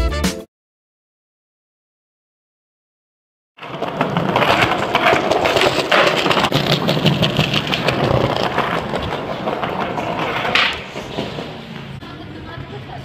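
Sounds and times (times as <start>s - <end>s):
skateboard wheels rolling on paving: 3.6s - 13.0s.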